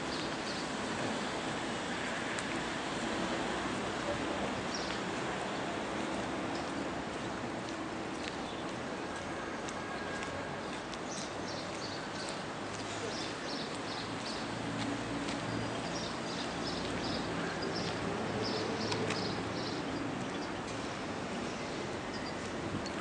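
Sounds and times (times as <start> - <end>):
outdoor street noise: 0.0 - 23.0
small birds chirping: 15.4 - 20.7.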